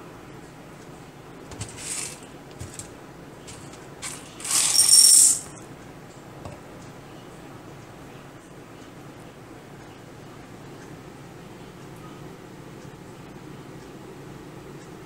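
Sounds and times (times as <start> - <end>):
dry pasta rattling into bowl: 1.5 - 2.9, 3.5 - 5.5.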